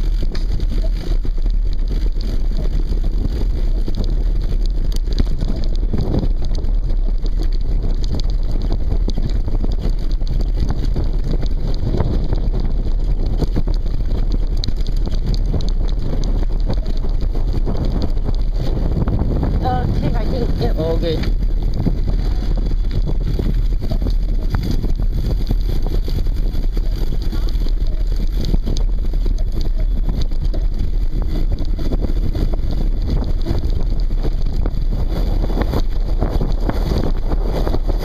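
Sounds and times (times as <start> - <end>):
mountain bike rattling on dirt trail: 0.0 - 38.0
wind noise on microphone: 0.0 - 38.0.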